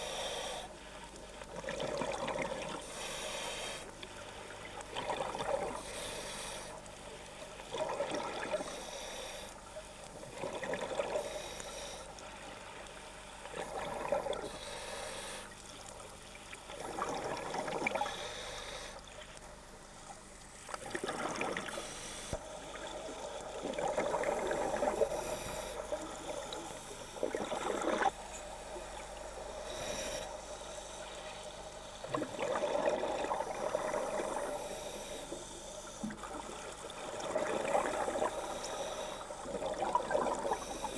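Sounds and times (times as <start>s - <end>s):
regulator inhale rushing: 0.0s - 1.0s, 2.6s - 4.5s, 5.5s - 7.6s, 8.4s - 10.1s, 11.0s - 13.4s, 14.3s - 15.6s, 17.6s - 19.2s, 21.2s - 23.6s, 24.2s - 40.9s
bubbling exhale: 20.8s - 28.2s, 31.6s - 40.9s.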